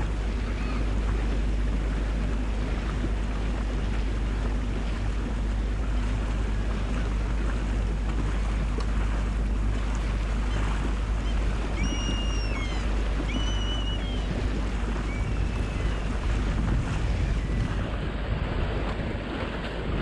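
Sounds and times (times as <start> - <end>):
wind and water rushing: 0.0 - 20.0
wind buffeting microphone: 0.0 - 20.0
short high whistles: 11.8 - 14.3.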